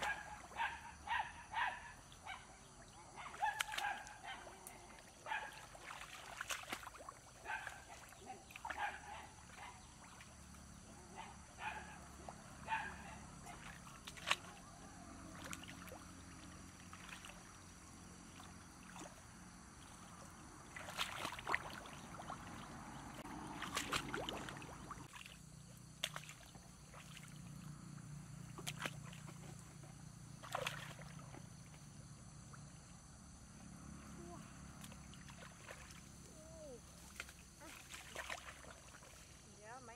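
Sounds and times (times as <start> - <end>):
dog yipping: 3.2 - 4.4
hands splashing in muddy water: 3.3 - 10.8, 13.5 - 17.6, 18.2 - 27.4, 28.4 - 31.8, 34.8 - 39.4.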